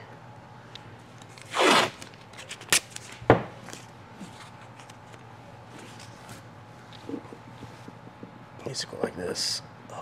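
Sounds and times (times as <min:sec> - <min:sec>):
tape and small parts rustling: 0:01.2 - 0:07.3
items knocking on wooden workbench: 0:03.3 - 0:03.6.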